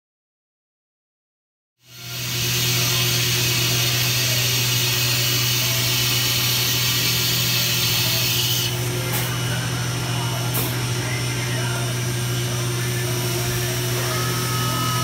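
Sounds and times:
milling machine spindle whirring: 1.9 - 15.0.

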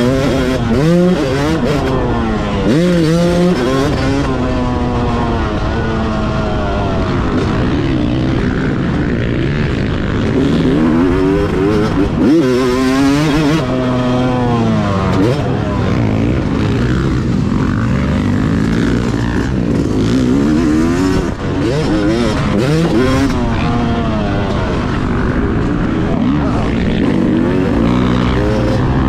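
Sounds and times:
two-stroke motorcycle revving: 0.0 - 29.0.

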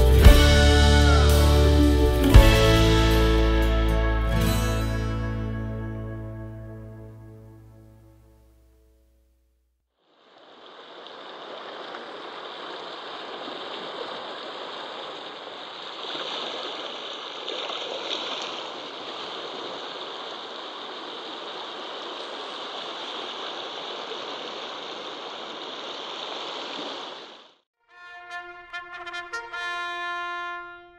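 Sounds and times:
small waves lapping at shore: 10.1 - 27.6.

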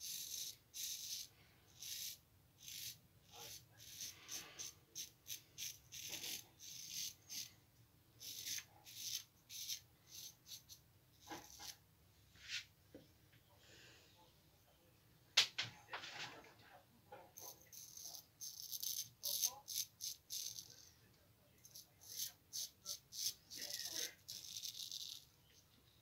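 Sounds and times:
razor scraping stubble: 0.0 - 7.5, 8.2 - 11.8, 17.4 - 20.9, 21.6 - 25.3.

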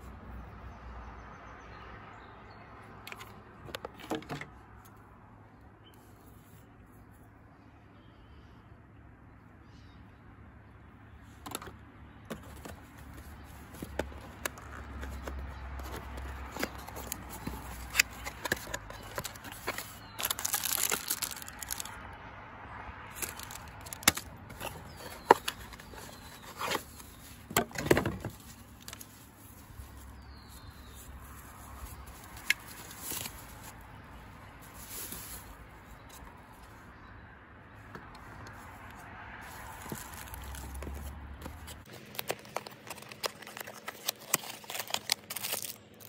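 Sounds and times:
cardboard taps and scrapes: 12.3 - 19.9
rustling paper and packaging: 12.3 - 22.0, 23.1 - 36.8, 38.2 - 46.0.

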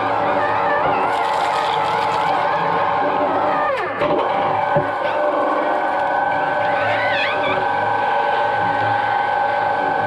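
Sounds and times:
shredder motor whine: 0.0 - 10.0.

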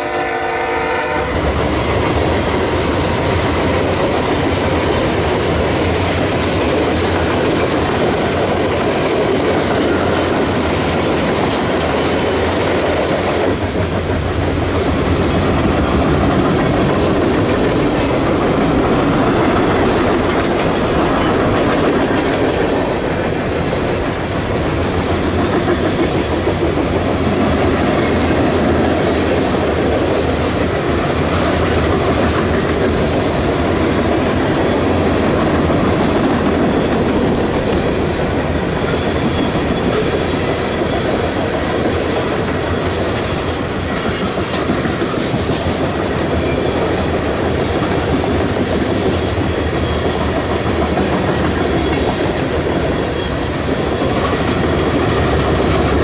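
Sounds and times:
train wheels clattering on rail: 0.0 - 56.0
faint high wheel squeal: 38.8 - 41.0.

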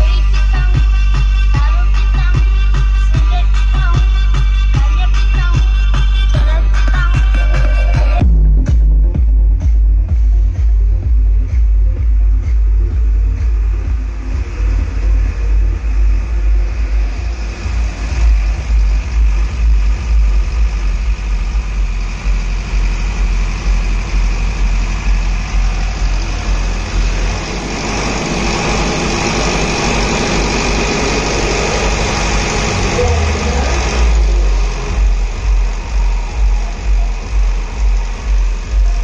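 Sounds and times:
diesel generator rumbling: 0.0 - 39.0
smooth rushing noise: 13.5 - 38.8.

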